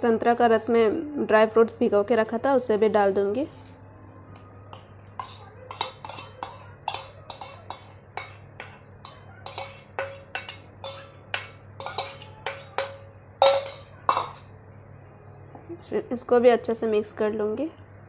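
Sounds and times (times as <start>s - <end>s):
spoon scraping steel bowl: 4.7s - 14.5s
faint low hum: 9.0s - 18.0s.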